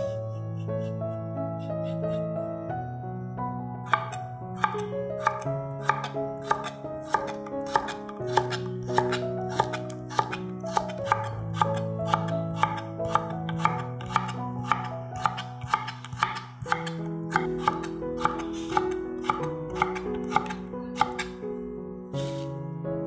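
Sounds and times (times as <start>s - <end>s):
background music with held notes: 0.0s - 23.0s
knife cutting on wooden board: 3.9s - 21.4s, 22.2s - 22.5s.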